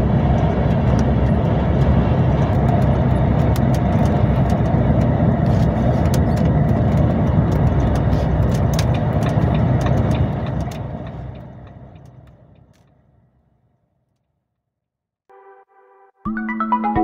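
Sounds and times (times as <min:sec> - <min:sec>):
truck engine and road rumble: 0:00.0 - 0:14.3
small clicks and rattles: 0:00.3 - 0:12.9.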